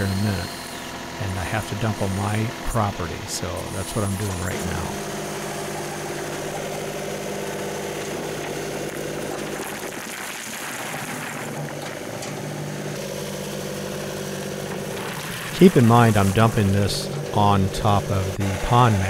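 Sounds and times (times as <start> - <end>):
tractor diesel engine running: 0.0 - 10.0, 10.7 - 19.0
stone dumping from bucket: 8.1 - 11.8.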